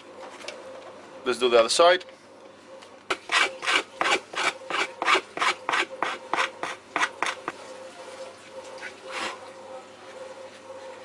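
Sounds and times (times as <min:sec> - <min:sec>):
file rasping on wood: 0:03.1 - 0:07.6.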